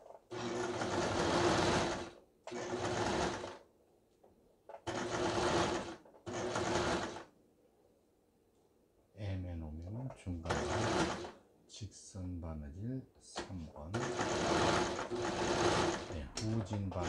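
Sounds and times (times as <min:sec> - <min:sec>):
sewing machine stitching: 0:00.0 - 0:03.6, 0:04.7 - 0:07.3, 0:10.4 - 0:11.4, 0:13.4 - 0:17.0.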